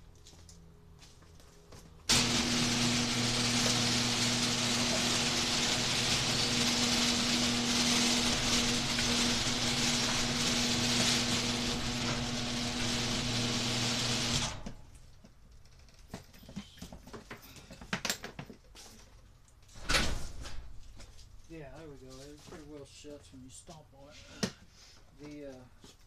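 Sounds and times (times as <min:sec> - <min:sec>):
garage door opener humming and rattling: 0:02.1 - 0:15.0.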